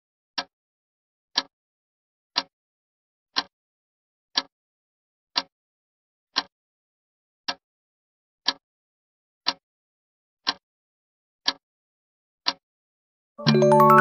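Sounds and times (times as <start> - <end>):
clock ticking: 8.4 - 8.6, 9.4 - 9.6, 10.4 - 10.6, 11.4 - 11.6, 12.4 - 12.6, 13.4 - 14.0.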